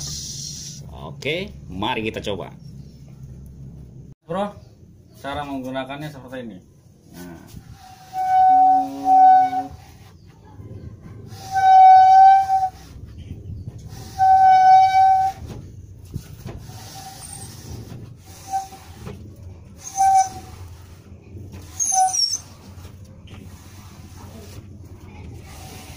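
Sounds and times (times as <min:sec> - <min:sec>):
wiper squeaking on glass: 0:07.7 - 0:10.3, 0:11.1 - 0:25.9.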